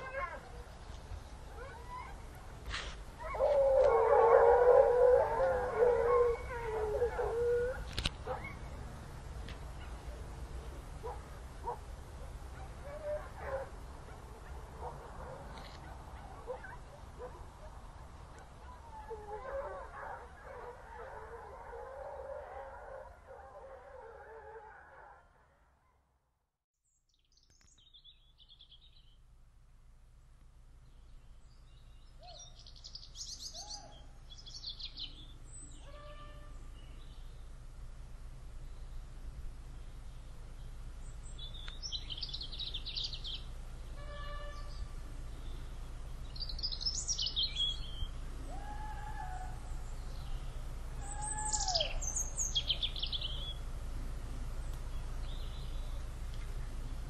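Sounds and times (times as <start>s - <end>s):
hounds yelping and howling: 0.0s - 0.8s, 1.5s - 2.5s, 3.2s - 8.7s, 12.5s - 25.3s, 51.0s - 53.1s
songbirds trilling: 0.0s - 8.9s, 30.8s - 53.8s, 54.4s - 57.0s
low steady rumble: 27.8s - 57.0s.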